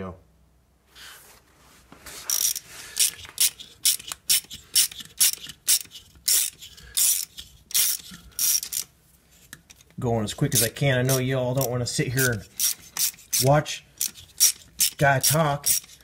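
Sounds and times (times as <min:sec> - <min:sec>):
hand ratchet clicking: 0:02.3 - 0:08.9, 0:10.5 - 0:16.0.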